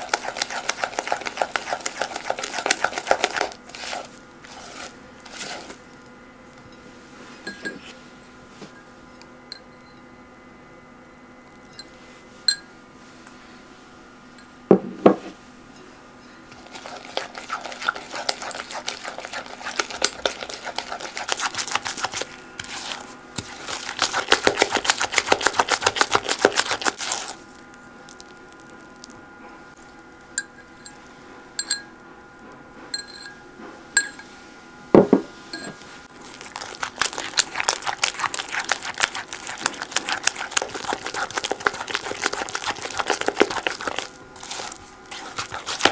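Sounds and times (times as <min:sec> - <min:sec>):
spatula mixing in glass bowl: 0:00.0 - 0:05.8, 0:16.5 - 0:29.1, 0:36.1 - 0:45.9.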